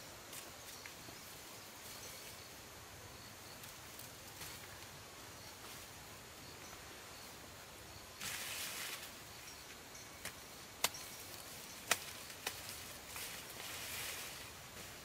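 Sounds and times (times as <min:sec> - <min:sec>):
dry corn plants rustling: 0:08.2 - 0:15.0
corn ears snapping off stalks: 0:10.2 - 0:13.6.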